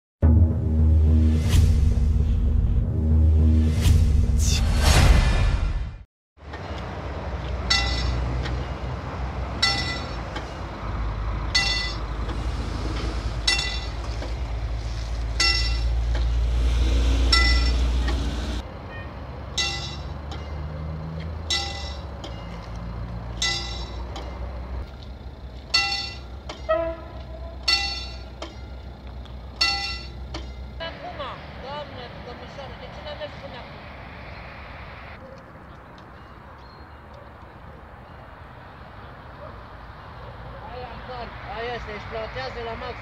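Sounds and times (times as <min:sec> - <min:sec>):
low rumble: 0:00.2 - 0:06.0
level crossing bell ringing: 0:09.6 - 0:10.2, 0:11.6 - 0:12.1, 0:15.4 - 0:16.0, 0:19.6 - 0:20.7, 0:21.5 - 0:22.1, 0:25.7 - 0:26.3, 0:27.6 - 0:28.8, 0:29.6 - 0:30.7.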